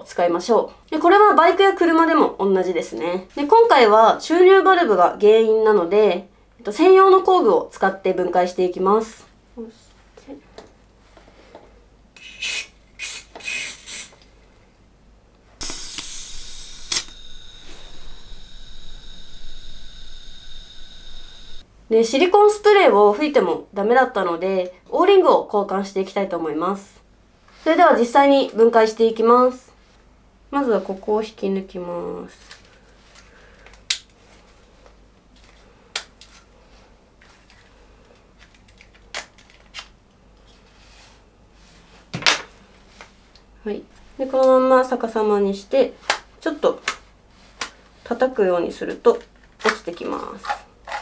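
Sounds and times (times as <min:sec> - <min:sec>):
aerosol spray hissing: 0:12.4 - 0:14.2, 0:15.6 - 0:21.6
sharp click: 0:15.6 - 0:17.5.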